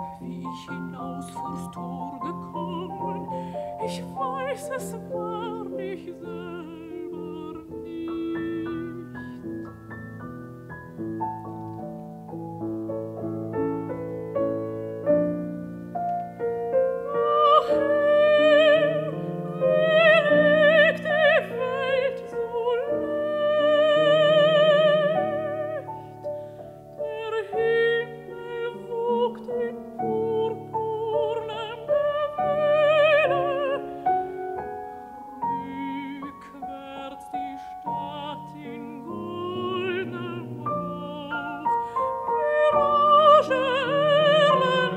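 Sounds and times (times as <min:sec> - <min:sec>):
woman singing with vibrato: 0:00.0 - 0:09.4, 0:17.0 - 0:26.0, 0:27.0 - 0:34.0, 0:35.1 - 0:44.9
piano accompaniment: 0:00.0 - 0:44.9.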